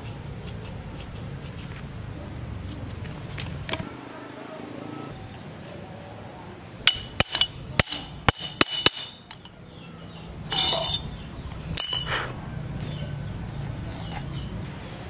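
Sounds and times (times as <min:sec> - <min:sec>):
hammer tapping on metal: 0:06.9 - 0:09.5
metal parts clinking: 0:06.9 - 0:12.2
metal scrape: 0:10.5 - 0:11.2, 0:13.8 - 0:14.4.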